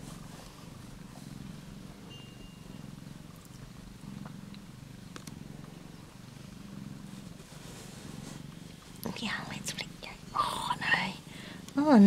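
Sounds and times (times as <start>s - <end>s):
cat purring: 0.0s - 12.0s.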